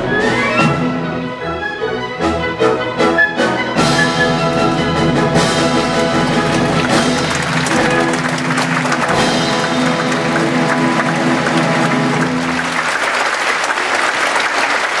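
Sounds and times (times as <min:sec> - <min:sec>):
orchestra playing: 0:00.0 - 0:15.0
audience applause: 0:05.8 - 0:15.0.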